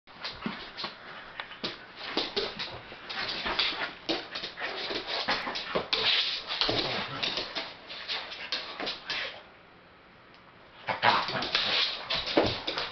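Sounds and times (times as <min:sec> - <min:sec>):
dogs scuffling: 0:00.1 - 0:09.4, 0:10.8 - 0:12.9.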